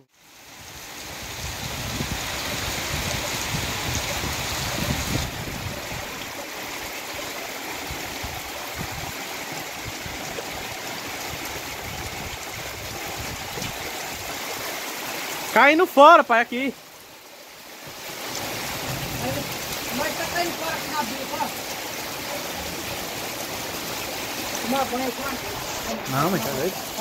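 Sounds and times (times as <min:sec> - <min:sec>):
heavy rain falling: 0:00.0 - 0:27.0
runoff splashing onto ground: 0:17.9 - 0:27.0.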